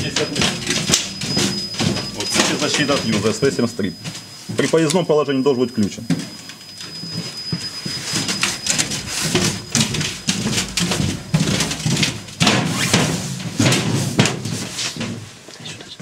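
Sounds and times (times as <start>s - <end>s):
footsteps: 0.0s - 4.8s, 6.7s - 15.8s
faint high whine: 0.0s - 13.2s.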